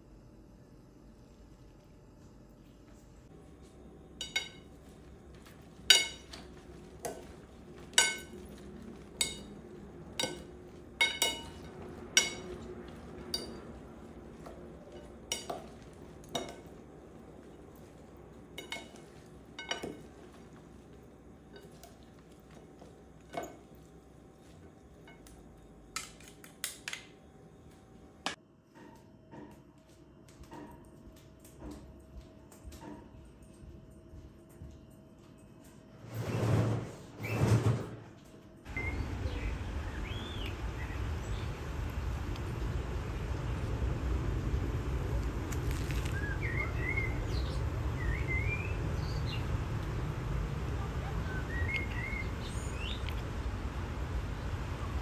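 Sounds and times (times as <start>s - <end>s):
food being stirred: 3.4s - 25.3s
spoons clinking on ceramic bowl: 4.2s - 20.9s.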